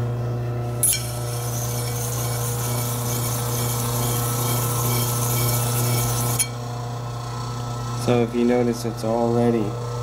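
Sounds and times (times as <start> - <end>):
motor hum: 0.0 - 10.0
blade grinding on sharpening wheel: 0.7 - 6.7.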